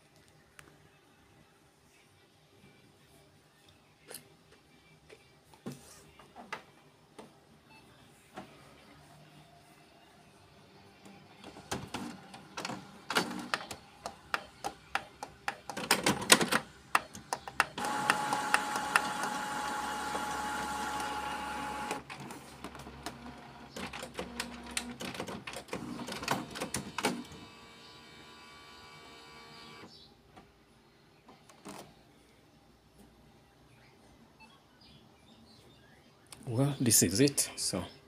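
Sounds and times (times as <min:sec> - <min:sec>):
quiet printer hum: 0:00.2 - 0:36.2
printer clicks and clatters: 0:11.4 - 0:27.8
printer motor whine: 0:17.7 - 0:22.2, 0:25.8 - 0:29.9.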